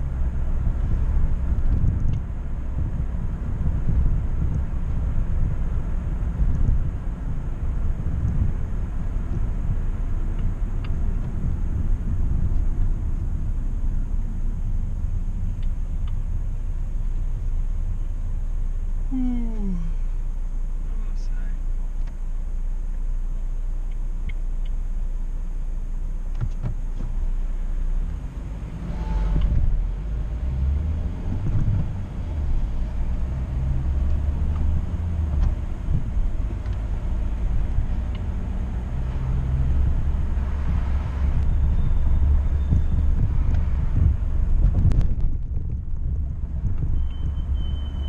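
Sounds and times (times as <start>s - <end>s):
car engine and road rumble: 0.0s - 48.0s.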